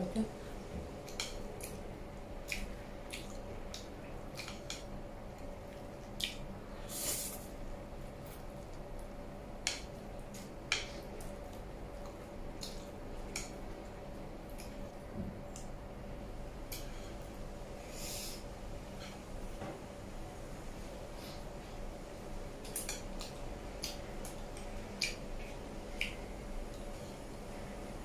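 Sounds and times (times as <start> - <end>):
wet chewing and lip smacks: 2.4 - 6.5, 22.7 - 26.9.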